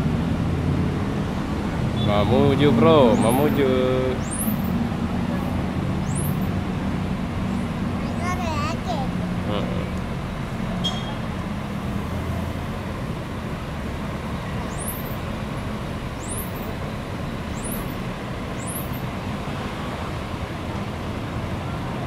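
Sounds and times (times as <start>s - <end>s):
diesel bus engine idling: 0.0s - 22.0s
high rising chirps: 3.0s - 4.8s, 6.0s - 6.6s.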